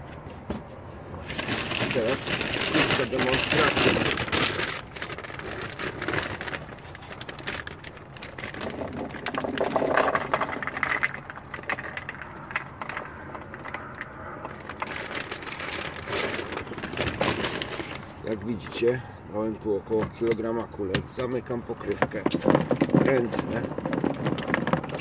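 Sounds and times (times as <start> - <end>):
bait balls rattling onto plastic: 1.3 - 18.2, 22.1 - 25.0.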